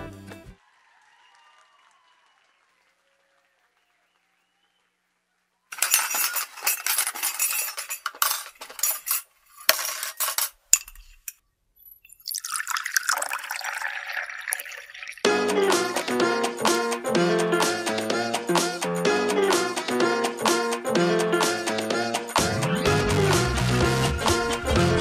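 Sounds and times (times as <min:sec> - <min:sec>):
glass clinking: 0:05.8 - 0:15.2
water pouring and splashing: 0:12.0 - 0:15.3.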